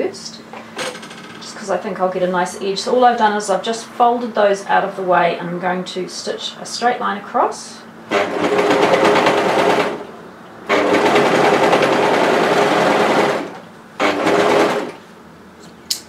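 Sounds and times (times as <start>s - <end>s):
overlocker stitching: 8.1s - 10.0s, 10.7s - 15.0s.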